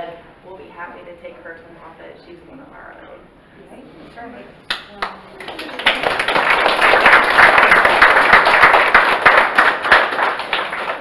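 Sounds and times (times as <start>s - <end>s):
crowd applauding: 5.0s - 11.0s.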